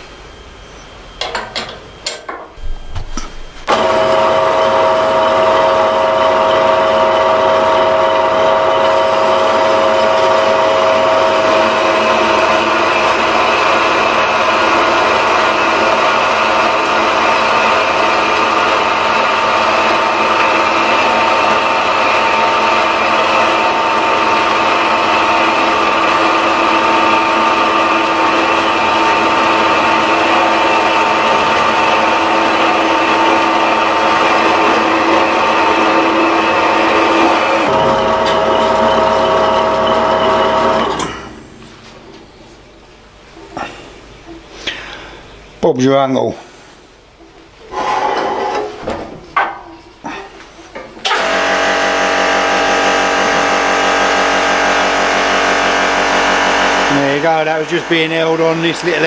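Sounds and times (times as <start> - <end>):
bandsaw cutting metal: 3.6 - 41.4, 51.1 - 59.0.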